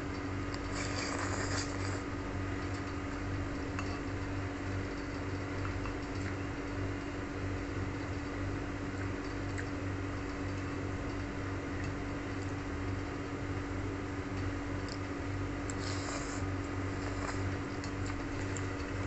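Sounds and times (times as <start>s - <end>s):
slurping noodles: 0.6s - 2.1s, 15.7s - 18.7s
noodles being eaten: 0.7s - 2.0s.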